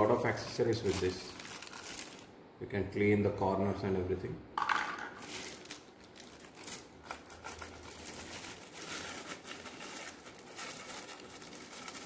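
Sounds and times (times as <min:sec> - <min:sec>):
plastic wrapping crinkling: 0:00.0 - 0:02.3, 0:05.2 - 0:12.0.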